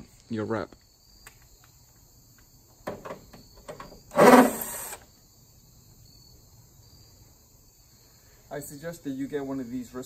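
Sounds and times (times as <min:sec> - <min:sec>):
crickets chirping: 0:00.0 - 0:10.0
cordless drill spinning bolt: 0:04.1 - 0:05.0.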